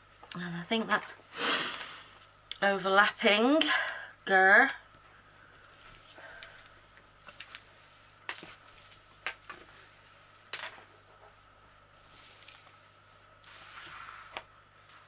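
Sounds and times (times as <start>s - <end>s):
palms rustling on plastic sheet: 5.6s - 15.0s.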